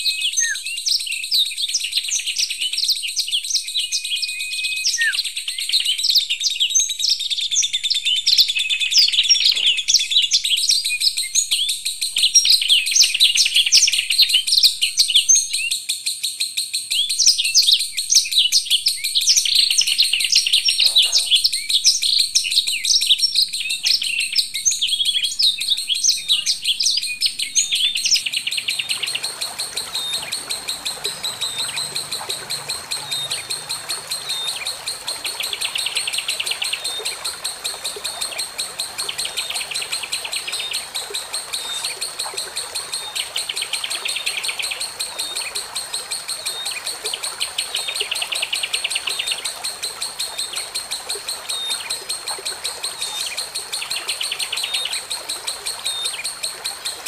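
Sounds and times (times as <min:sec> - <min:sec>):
songbirds chirping and twittering: 0:00.0 - 0:57.0
thin steady high tone: 0:25.1 - 0:48.0.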